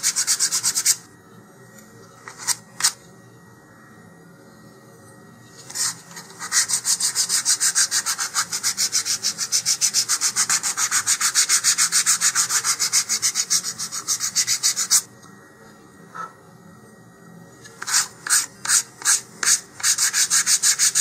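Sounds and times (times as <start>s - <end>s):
sanding block scraping wood: 0.0s - 1.0s, 5.7s - 15.1s, 17.8s - 21.0s.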